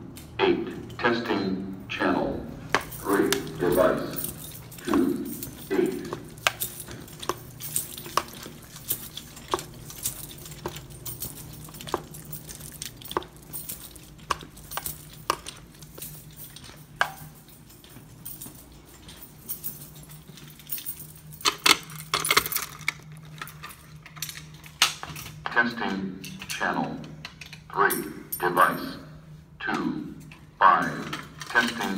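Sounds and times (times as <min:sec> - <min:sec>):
low steady hum: 0:00.0 - 0:31.9
keys jangling: 0:00.1 - 0:29.4, 0:30.1 - 0:31.9
footsteps on hard floor: 0:02.6 - 0:20.6.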